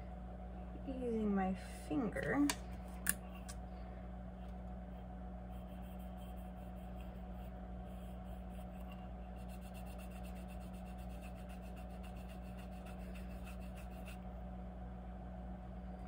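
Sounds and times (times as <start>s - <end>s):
steady low hum: 0.0s - 16.0s
fingertip rubbing paint on metal: 5.5s - 14.2s.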